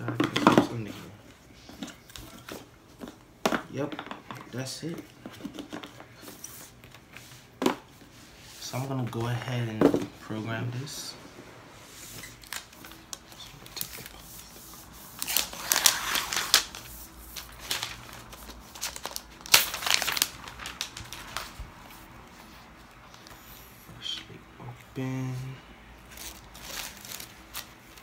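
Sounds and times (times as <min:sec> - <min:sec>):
packaging crinkling and rustling: 0:12.1 - 0:22.5, 0:26.1 - 0:28.0.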